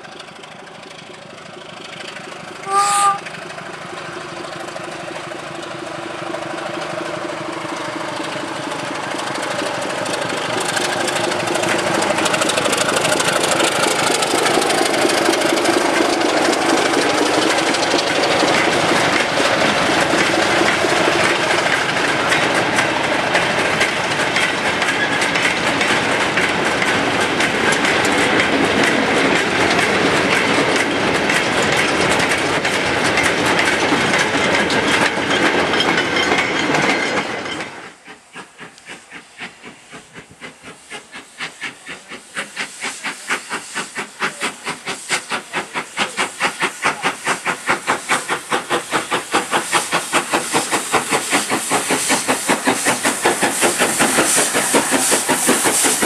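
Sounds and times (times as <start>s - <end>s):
diesel locomotive running: 0.0s - 56.0s
wagons clattering over rail joints: 5.5s - 38.6s.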